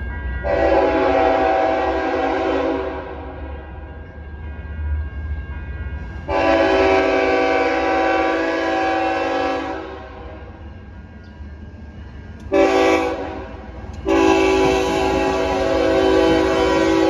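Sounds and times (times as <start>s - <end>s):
locomotive air horn blasts: 0.5s - 3.4s, 6.3s - 10.4s, 12.5s - 17.0s.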